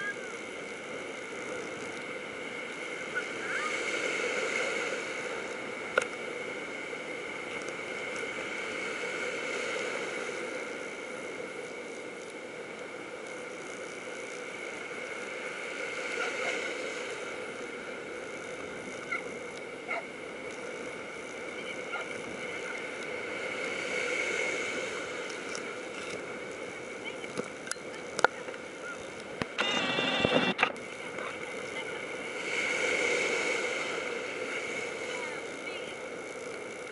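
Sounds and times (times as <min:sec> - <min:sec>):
steady hum: 0:00.0 - 0:36.9
surf breaking: 0:19.9 - 0:36.9.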